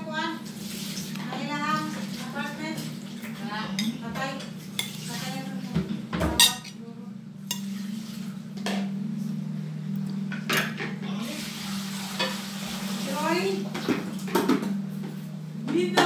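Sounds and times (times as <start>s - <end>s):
plates and spoon clinking: 3.7s - 5.1s, 6.3s - 6.8s, 7.5s - 7.8s.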